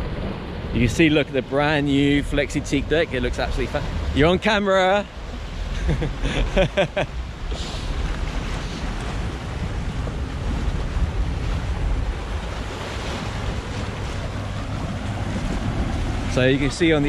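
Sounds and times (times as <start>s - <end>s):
steady low rumble: 0.0s - 17.0s
water churned by boat drives: 0.0s - 17.0s
wind buffeting microphone: 5.2s - 17.0s.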